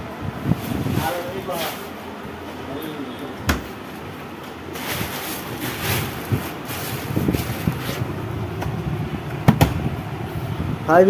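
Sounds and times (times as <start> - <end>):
busy shop din: 0.6 - 8.2.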